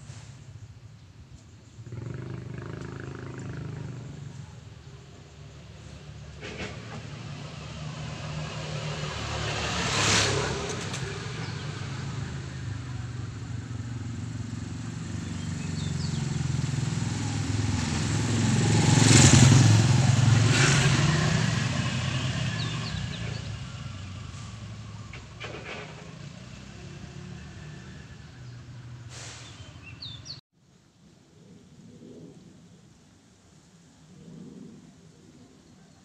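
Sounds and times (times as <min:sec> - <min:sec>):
passing vehicle engine: 0:01.7 - 0:30.4.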